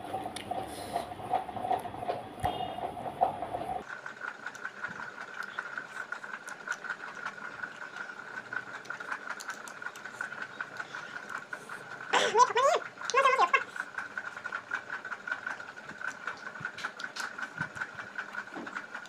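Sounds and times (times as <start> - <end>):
high-pitched hum: 0.0 - 3.8
chewing and mouth clicks: 4.5 - 12.0.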